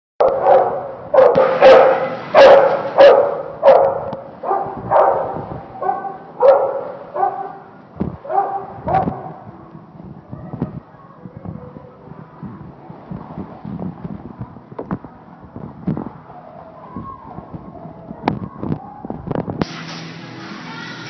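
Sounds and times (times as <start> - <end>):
dog barking with echo: 0.2 - 9.5.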